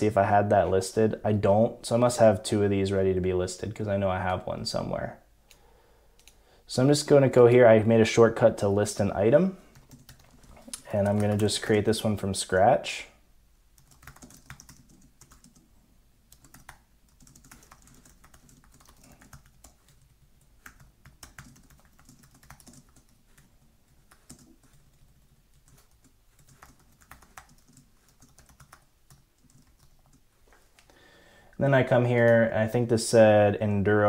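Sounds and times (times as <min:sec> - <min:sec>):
fast keyboard typing: 0:09.7 - 0:11.7, 0:13.8 - 0:15.7, 0:16.3 - 0:30.2.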